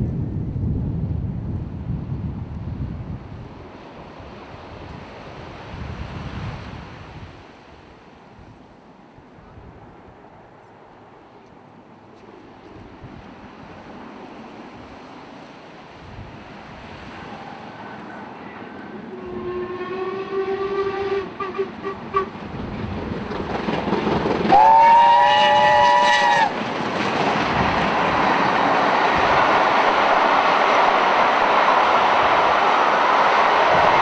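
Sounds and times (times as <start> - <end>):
train exhaust and wheels: 0.0 - 34.0
low steam whistle: 19.0 - 22.4, 24.5 - 26.6
high steam whistle: 19.1 - 22.3, 24.5 - 26.6.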